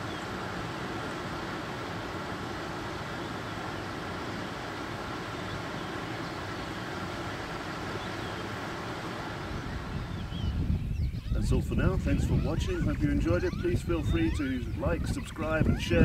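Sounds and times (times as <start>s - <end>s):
fast-flowing river rushing: 0.0s - 10.1s.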